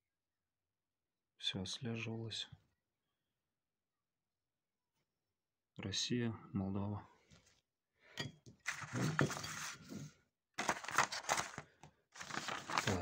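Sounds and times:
paper rustling and crackling: 0:08.6 - 0:13.0.

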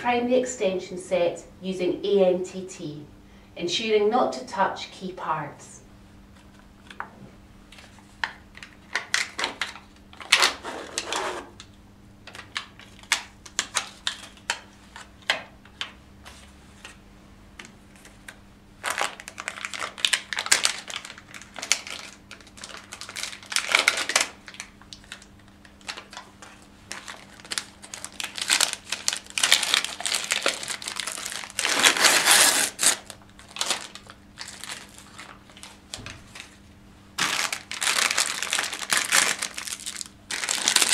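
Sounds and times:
plastic packaging crinkling: 0:07.8 - 0:11.4, 0:12.3 - 0:15.3, 0:18.8 - 0:40.9.

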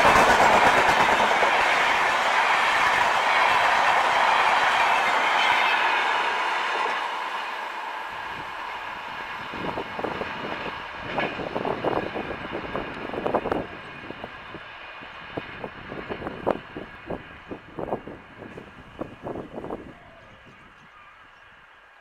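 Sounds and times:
uneven rumbling bursts: 0:00.0 - 0:05.3
passenger train rushing past: 0:00.0 - 0:20.4.

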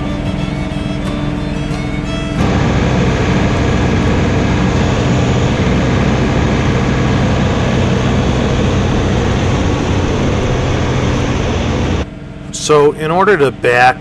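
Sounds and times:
tractor diesel engine running: 0:00.0 - 0:14.0
snowblower throwing snow: 0:02.4 - 0:12.0.

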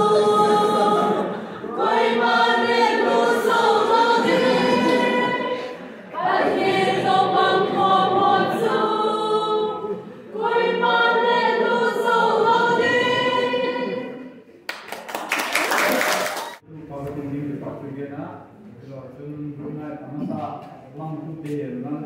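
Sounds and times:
mixed choir singing in unison: 0:00.0 - 0:14.5.

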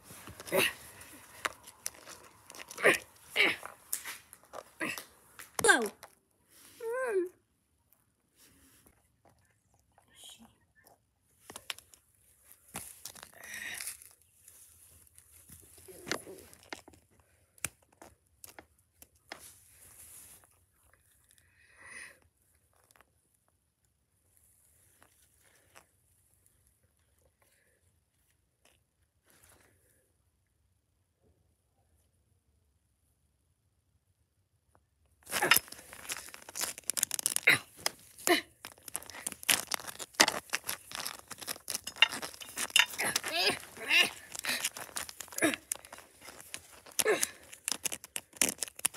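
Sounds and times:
plastic figurines clicking on concrete: 0:35.3 - 0:38.0, 0:38.6 - 0:48.9.

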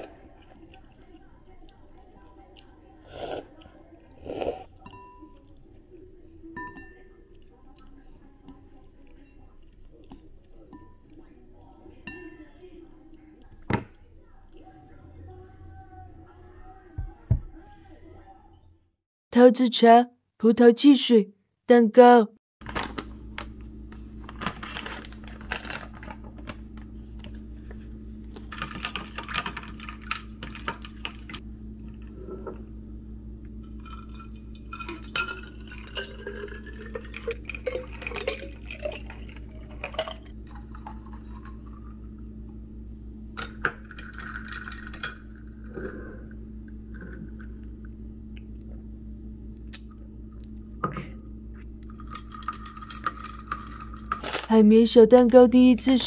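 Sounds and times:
steady low hum: 0:22.7 - 0:56.0
glassware clinking: 0:33.8 - 0:41.6
tea pouring into bottle: 0:33.8 - 0:42.0.

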